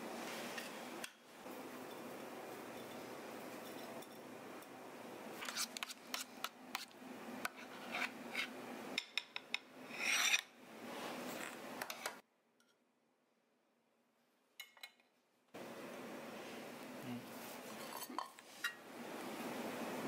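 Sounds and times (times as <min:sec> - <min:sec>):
metal spoon scraping tin: 0:05.4 - 0:06.9.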